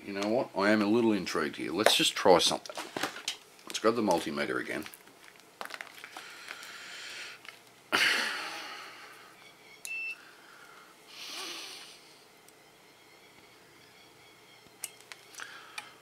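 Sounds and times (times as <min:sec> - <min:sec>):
breathy exhale: 0:06.1 - 0:07.4, 0:15.4 - 0:16.0
multimeter beep: 0:09.4 - 0:10.2.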